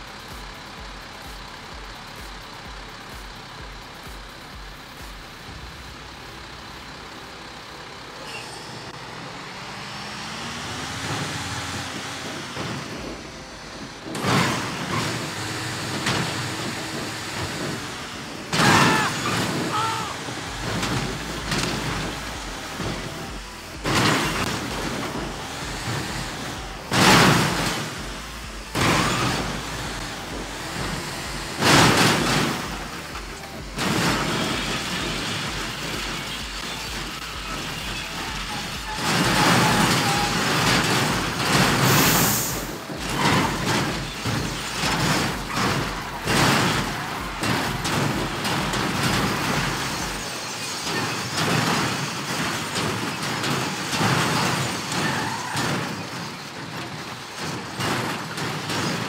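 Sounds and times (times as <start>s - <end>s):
vehicle engine rumbling: 0.0s - 59.0s
vehicle knocks and bangs: 0.0s - 59.0s
short high hiss: 41.8s - 42.8s.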